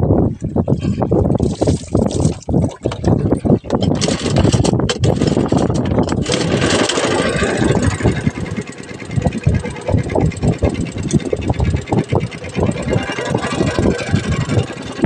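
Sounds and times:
boat engine running: 0.3 - 15.0
knocks and water splashes: 1.4 - 8.2.

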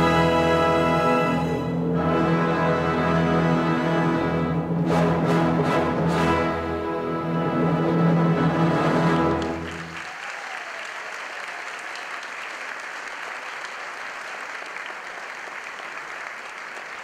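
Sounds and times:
orchestral ballet music: 0.0 - 10.0
audience applause: 9.2 - 17.0.

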